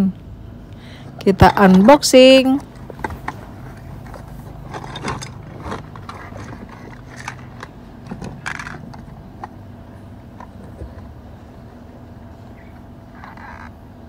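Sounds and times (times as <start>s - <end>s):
plastic toy parts clicking: 4.7s - 9.6s.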